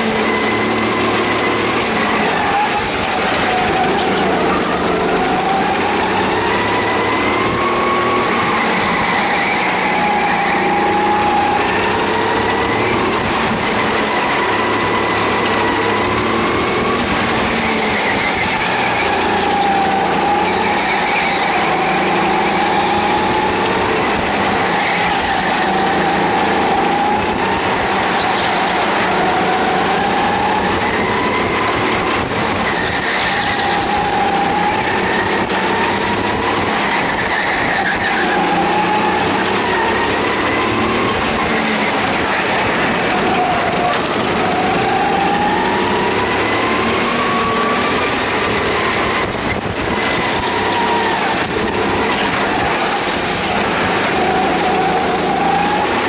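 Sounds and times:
go-kart engine revving: 0.0s - 56.0s.

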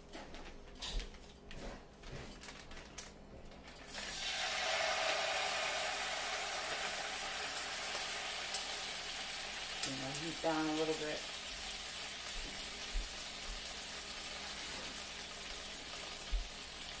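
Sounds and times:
faint clicks and rustles: 0.1s - 3.9s
food sizzling in hot oil: 3.9s - 17.0s.

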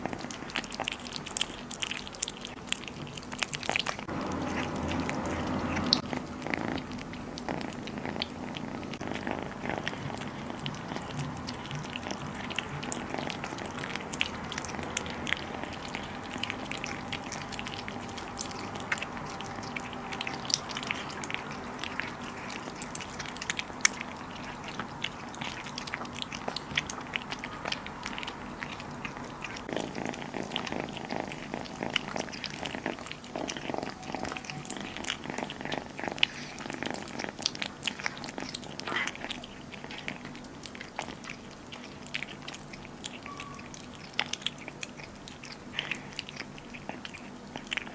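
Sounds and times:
kittens chewing raw meat: 0.0s - 47.9s
low steady hum: 0.0s - 47.9s.

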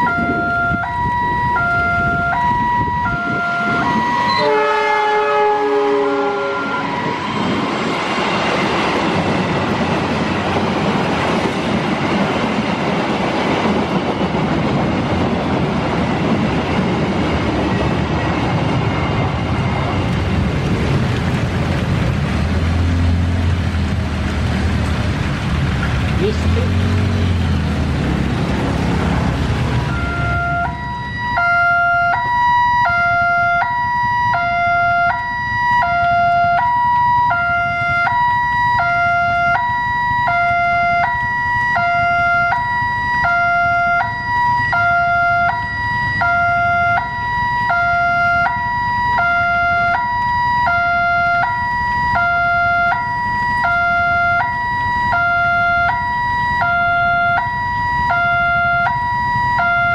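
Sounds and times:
level crossing alarm: 0.0s - 7.5s, 29.8s - 59.9s.

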